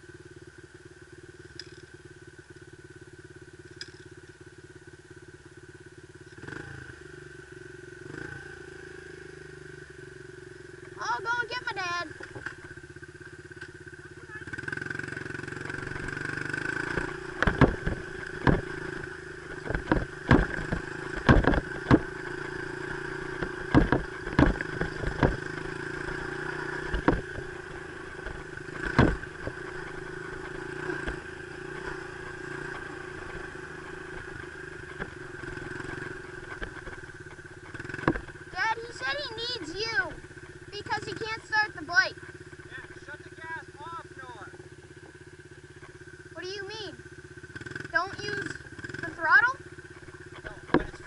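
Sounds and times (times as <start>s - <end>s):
dirt bike engine running: 0.0s - 51.0s
sharp knocks and clatter: 15.7s - 38.5s, 49.9s - 51.0s.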